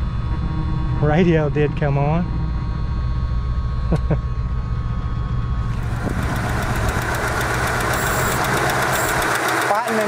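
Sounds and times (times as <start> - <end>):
car engine idling: 4.9 - 10.0.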